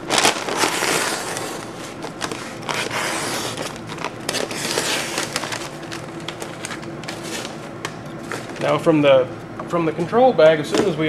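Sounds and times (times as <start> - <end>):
knife cutting paper sack: 0.0 - 7.6
paper crackling and crinkling: 0.0 - 8.9.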